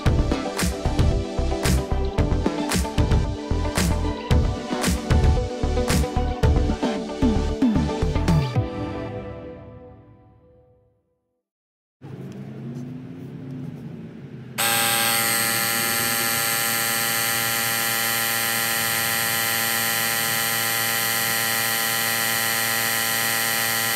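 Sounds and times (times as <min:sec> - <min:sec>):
air compressor buzzing whine: 0:14.6 - 0:23.9.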